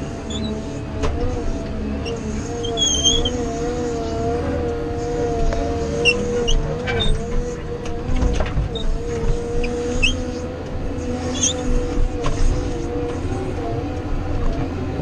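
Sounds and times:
heavy machine engine rumble: 0.0s - 15.0s
short high squeaks: 0.3s - 0.6s, 2.0s - 4.1s, 6.0s - 7.3s, 9.6s - 10.4s, 11.2s - 11.8s.

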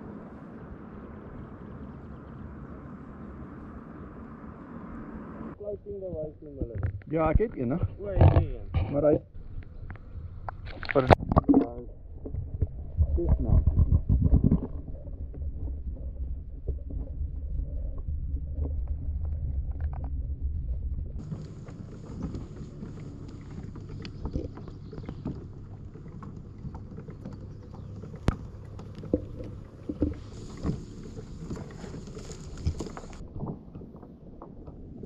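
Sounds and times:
muffled underwater rumble: 0.0s - 35.0s
water lapping against hull: 0.0s - 35.0s
kayak sliding through reeds: 20.2s - 33.7s.

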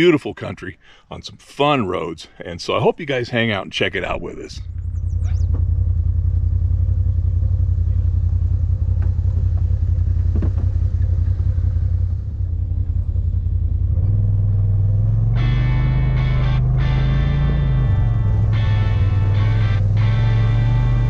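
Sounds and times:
utv engine revving: 4.1s - 21.0s
guitar music: 15.0s - 21.0s.

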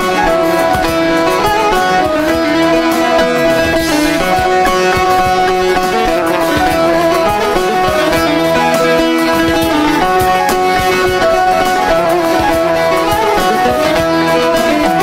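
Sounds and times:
plucked-string folk melody: 0.0s - 15.0s.

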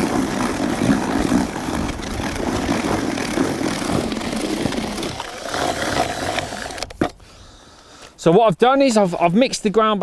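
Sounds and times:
cordless drill mixing groundbait: 0.0s - 7.2s.

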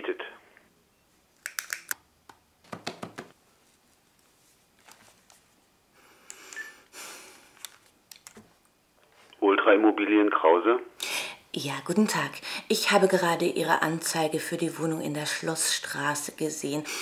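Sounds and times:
soft rustling: 3.3s - 5.8s.

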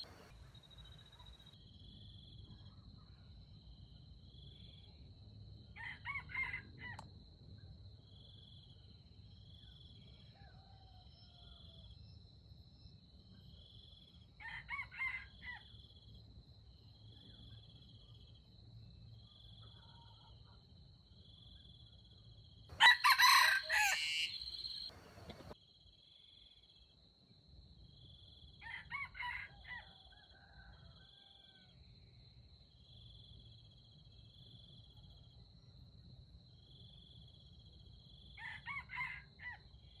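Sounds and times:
rooster crowing: 0.0s - 0.3s, 5.8s - 7.0s, 10.3s - 11.9s, 14.4s - 15.6s, 22.7s - 25.6s, 28.6s - 31.8s, 38.4s - 39.6s.

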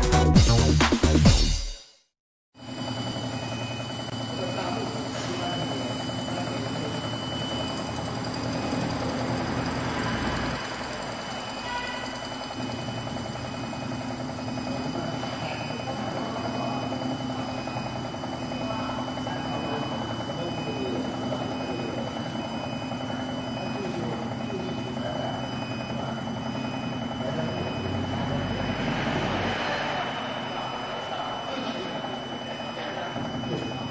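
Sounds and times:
lathe motors humming and whining: 2.6s - 33.9s.

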